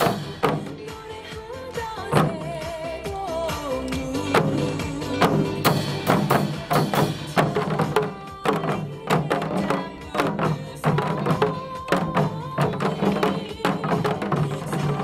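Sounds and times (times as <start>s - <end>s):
recorded music: 0.0s - 15.0s.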